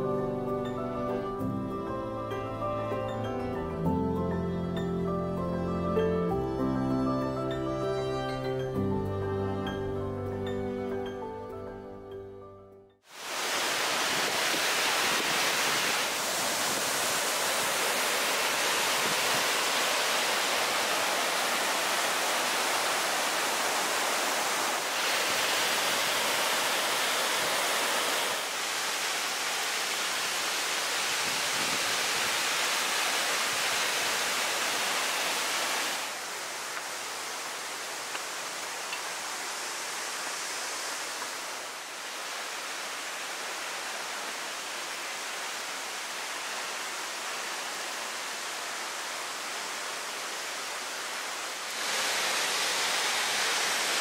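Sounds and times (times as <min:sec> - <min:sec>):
waterfall rushing: 0:13.1 - 0:54.0.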